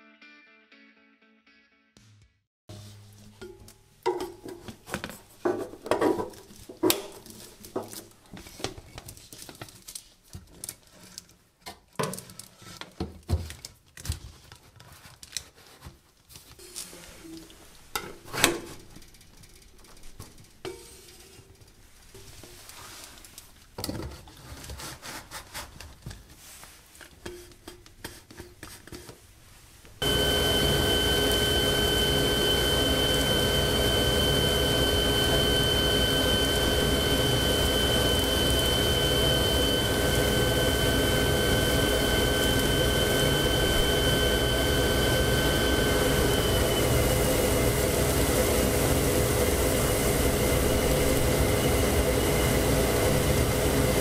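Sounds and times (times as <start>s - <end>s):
air rushing through hose: 30.0s - 54.0s
steady machine whine: 30.0s - 54.0s.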